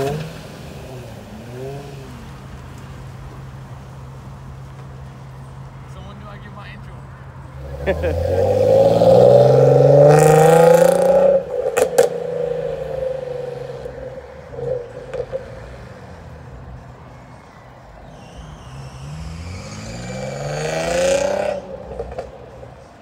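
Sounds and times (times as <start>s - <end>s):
car engine revving: 0.0s - 6.0s, 7.2s - 23.0s
exhaust cracks: 7.6s - 15.8s, 18.1s - 22.7s.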